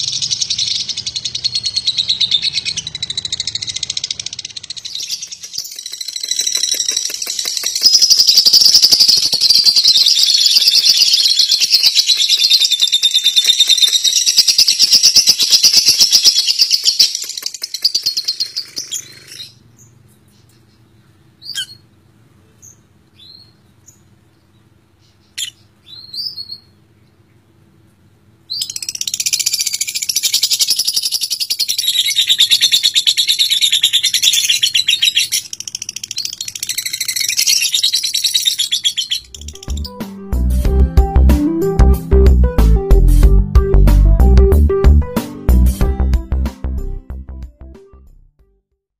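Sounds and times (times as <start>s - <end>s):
lovebird chattering trill: 0.0s - 19.9s, 28.5s - 40.0s
bird chirps: 0.0s - 27.4s, 28.5s - 40.0s.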